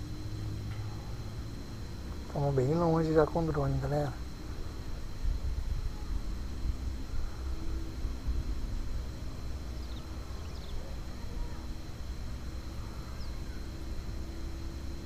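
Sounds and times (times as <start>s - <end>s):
faint steady hum: 0.0s - 15.0s
unsteady low rumble: 0.0s - 15.0s
faint high chirps: 12.6s - 13.8s.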